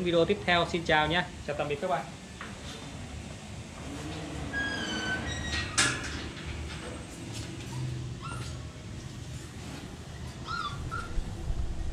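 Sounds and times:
dog whimpering yips: 0:07.7 - 0:08.7, 0:10.2 - 0:11.2.

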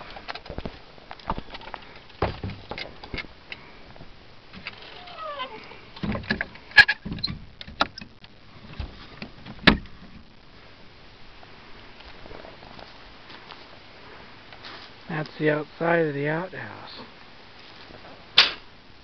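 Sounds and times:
knocks and clatter in wooden outhouse: 0:00.0 - 0:10.4
door hinge squeak: 0:04.6 - 0:05.6.

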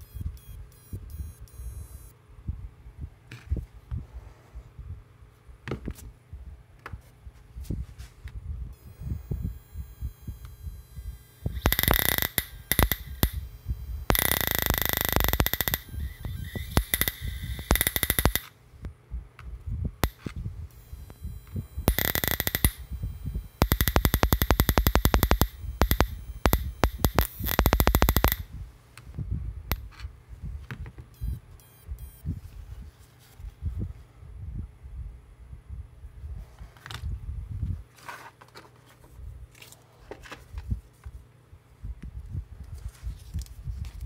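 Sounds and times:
electric spark crackling buzz: 0:08.8 - 0:18.6, 0:20.0 - 0:28.5.

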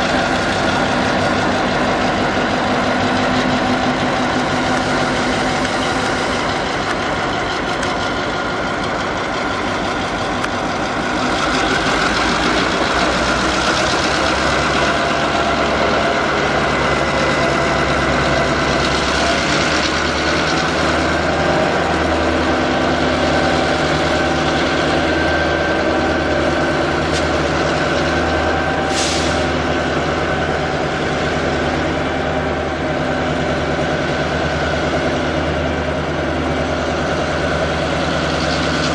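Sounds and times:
diesel locomotive engine idling: 0:00.0 - 0:38.9.

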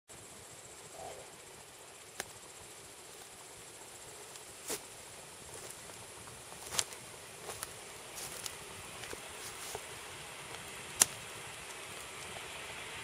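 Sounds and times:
faint hiss: 0:00.1 - 0:13.0
wood fire crackling: 0:00.2 - 0:13.0
fire pops: 0:02.1 - 0:02.5, 0:05.5 - 0:12.6.

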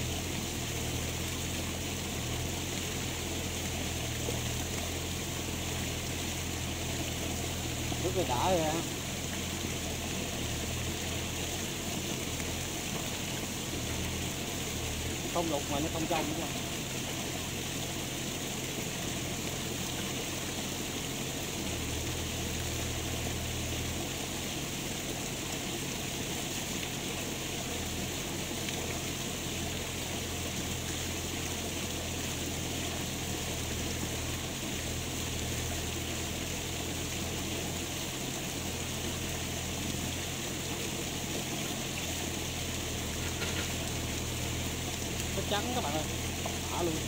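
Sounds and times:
flowing water rushing: 0:00.0 - 0:47.0.

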